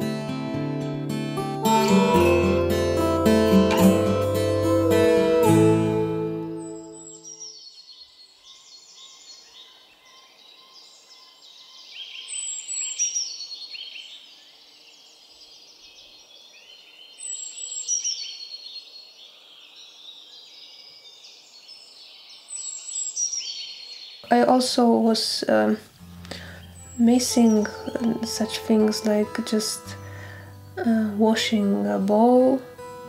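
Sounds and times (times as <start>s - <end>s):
songbird singing: 5.4s - 33.0s.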